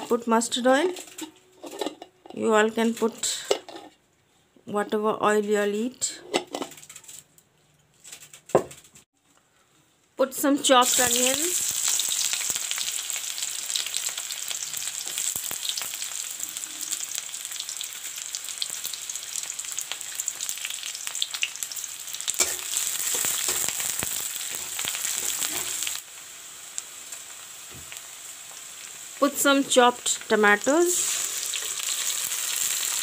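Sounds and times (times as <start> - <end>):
onions sizzling in hot oil: 10.6 - 33.0
metal spatula stirring: 22.4 - 23.7.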